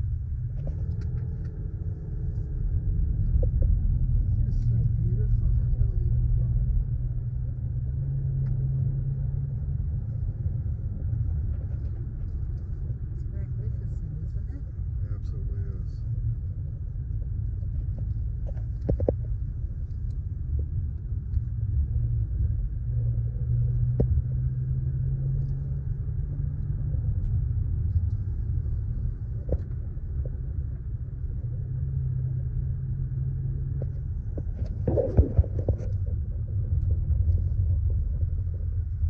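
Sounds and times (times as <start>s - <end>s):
car road and engine rumble: 0.0s - 39.0s.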